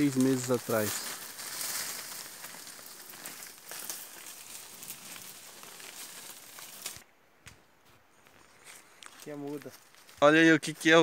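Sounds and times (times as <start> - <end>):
twigs clicking: 0.0 - 7.6, 8.3 - 10.2
leaves and undergrowth rustling: 0.0 - 11.0.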